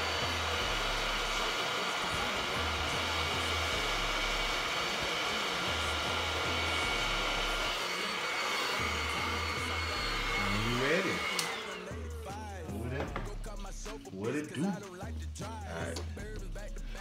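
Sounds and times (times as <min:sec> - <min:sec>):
music with pulsing bass: 0:14.9 - 0:17.0.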